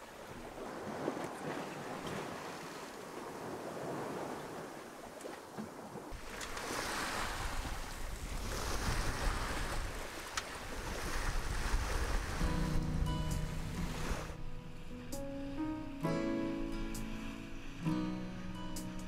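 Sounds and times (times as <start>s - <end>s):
water rushing past hull: 0.0s - 14.4s
wind buffeting microphone: 6.1s - 15.4s
low wind rumble: 7.1s - 19.0s.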